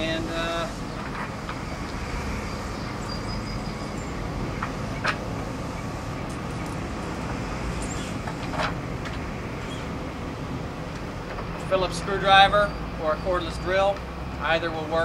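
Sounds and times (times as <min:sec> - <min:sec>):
low background rumble: 0:00.0 - 0:15.0.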